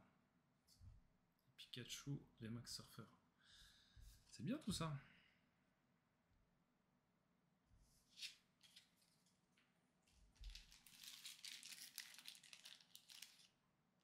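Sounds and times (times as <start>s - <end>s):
trading cards rustling and crinkling: 8.1s - 9.4s, 10.0s - 13.6s.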